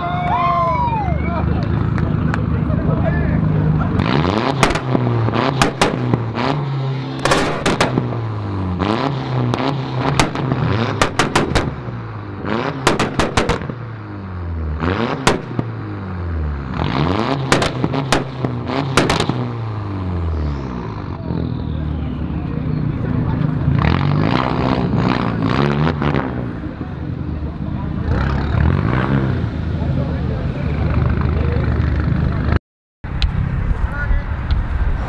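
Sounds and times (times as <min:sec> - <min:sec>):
car engine revving: 0:01.3 - 0:33.8
exhaust pops and bangs: 0:03.9 - 0:08.3, 0:09.4 - 0:14.0, 0:15.0 - 0:15.8, 0:17.3 - 0:19.7.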